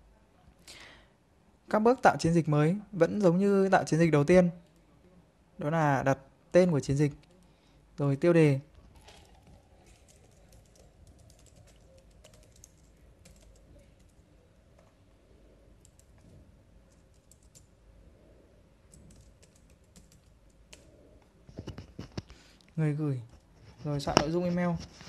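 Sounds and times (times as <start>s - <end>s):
computer keyboard typing: 8.9s - 15.0s, 15.8s - 17.8s, 18.9s - 20.9s.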